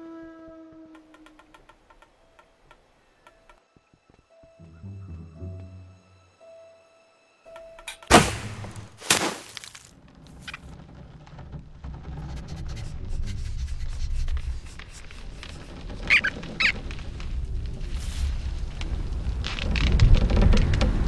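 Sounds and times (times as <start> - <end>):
cartoon sharp hit: 8.1 - 9.4
short squeaky chirps: 16.0 - 16.8.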